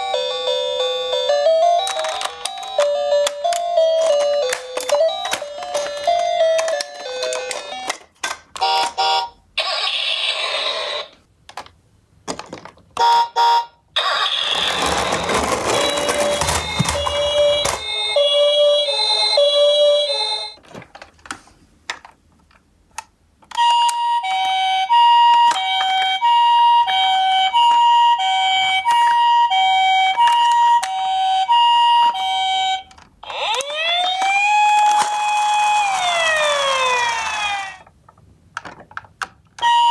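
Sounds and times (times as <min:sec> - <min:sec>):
two-tone ambulance siren: 0:31.2 - 0:37.8.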